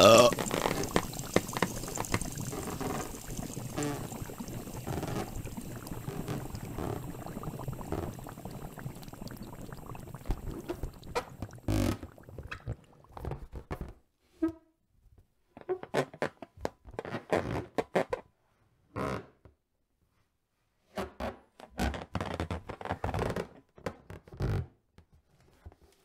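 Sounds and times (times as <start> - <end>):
stomach gurgling: 0.0 - 13.9.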